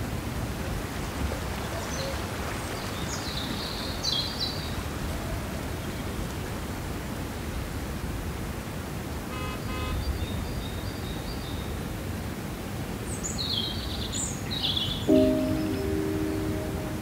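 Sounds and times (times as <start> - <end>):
river rushing over rocks: 0.0 - 9.3
bird chirps: 14.5 - 17.0.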